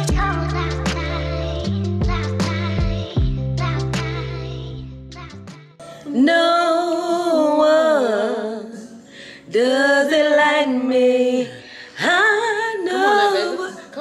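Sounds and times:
woman singing with vibrato: 5.8s - 14.0s.

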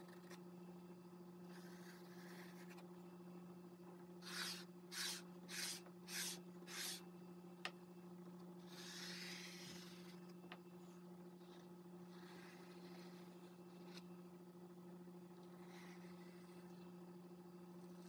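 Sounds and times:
steady low hum: 0.0s - 18.0s
spreader scraping paste: 4.2s - 7.0s.

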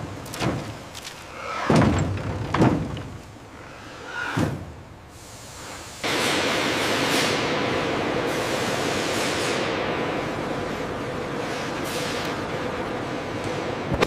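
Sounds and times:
factory hall hiss: 3.3s - 14.0s.

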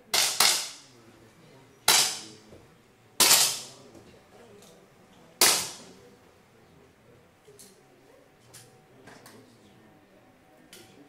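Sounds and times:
air pistol shots: 0.1s - 0.9s, 1.9s - 2.3s, 3.2s - 3.7s, 5.4s - 5.9s.

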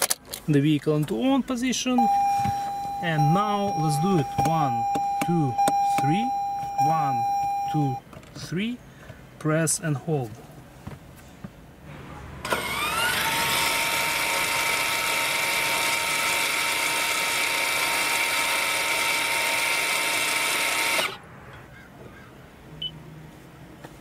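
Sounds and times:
electric motor geared whine: 12.4s - 21.2s.

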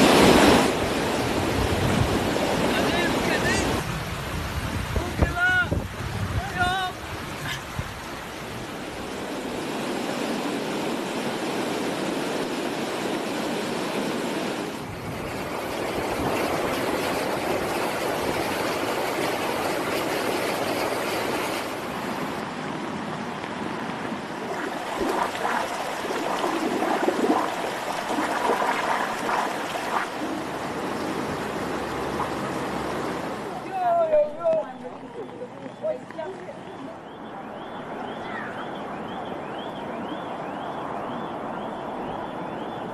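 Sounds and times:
heavy rain falling: 0.0s - 12.3s
floodwater rushing: 0.0s - 35.3s.

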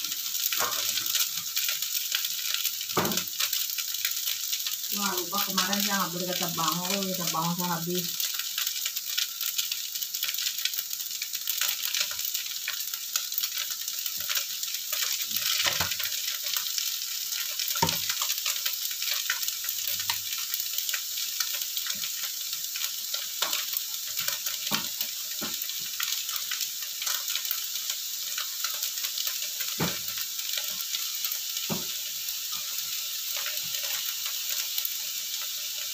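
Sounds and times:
noodles sizzling in a wok: 0.0s - 35.9s.

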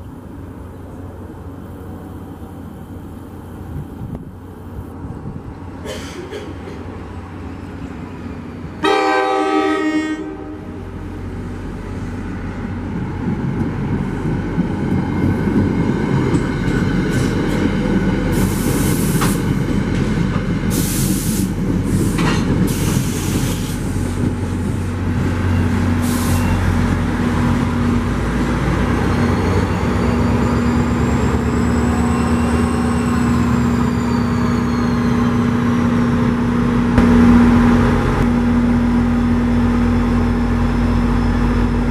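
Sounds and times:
train coaches rumbling and clattering: 0.0s - 9.6s, 10.7s - 41.9s
diesel locomotive engine drone: 0.0s - 41.9s
train horn blast: 8.8s - 11.0s
high wheel squeals: 28.9s - 35.8s.

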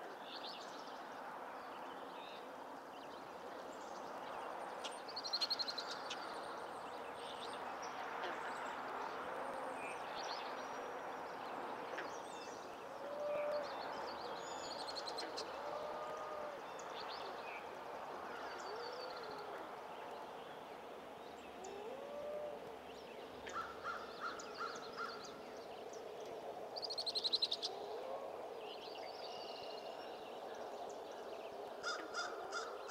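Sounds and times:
background hiss: 0.0s - 32.9s.

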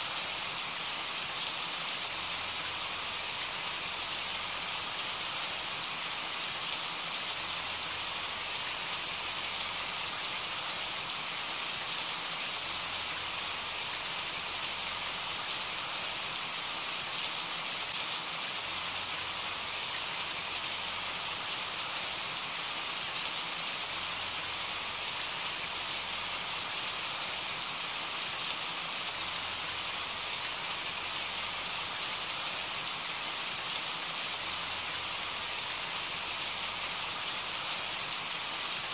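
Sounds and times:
steady rain falling: 0.0s - 38.9s.

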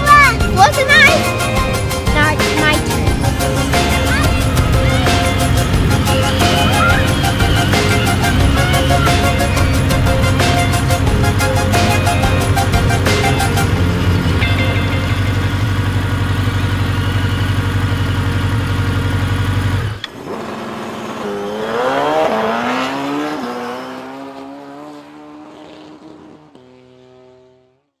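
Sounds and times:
steady electronic tones: 0.3s - 16.2s
electronic engine drone: 0.3s - 22.9s
electronic engine revving: 0.4s - 27.2s.

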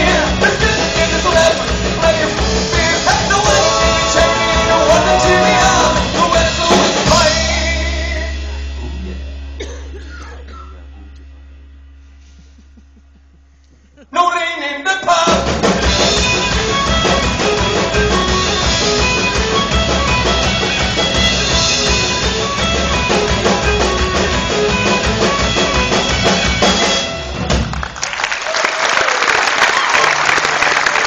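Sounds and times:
guitars: 0.0s - 13.2s, 14.8s - 27.9s
drum kit: 0.0s - 13.9s, 15.0s - 28.2s
fiddle: 16.0s - 27.2s.

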